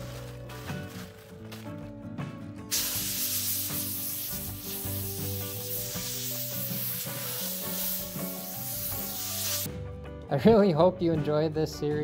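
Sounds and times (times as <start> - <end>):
plastic film peeling hiss: 0.0 - 1.8, 2.7 - 9.7
background music: 0.0 - 12.0.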